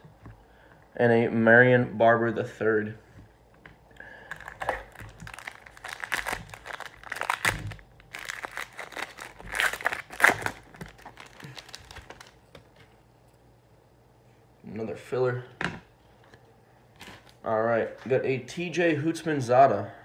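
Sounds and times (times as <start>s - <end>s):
foil wrapper crinkling: 4.2s - 12.7s.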